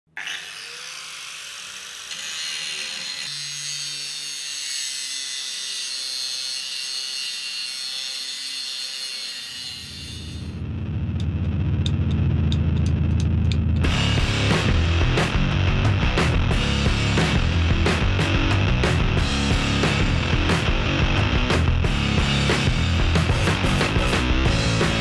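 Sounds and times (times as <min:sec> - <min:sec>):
heavy rock music: 0:10.4 - 0:25.0.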